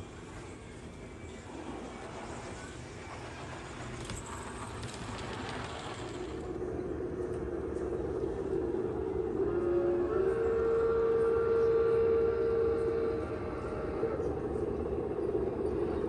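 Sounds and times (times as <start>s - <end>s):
model locomotive running: 0.0s - 16.0s.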